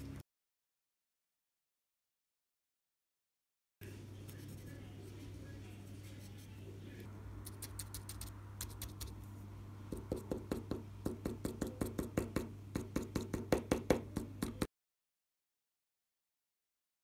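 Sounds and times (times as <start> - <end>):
steady low hum: 3.8 - 14.7
paintbrush tapping on paper: 7.5 - 9.2, 9.9 - 14.7.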